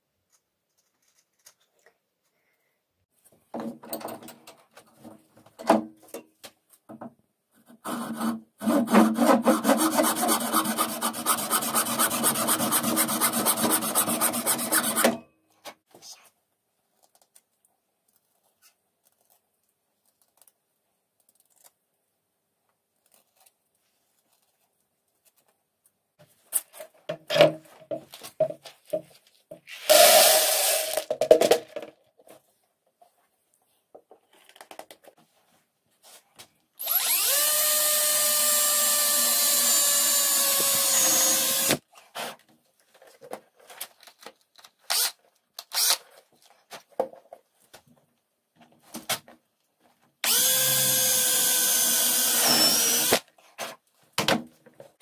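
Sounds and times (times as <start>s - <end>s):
cordless power drill running: 36.8s - 41.8s, 45.7s - 46.0s, 50.2s - 53.2s.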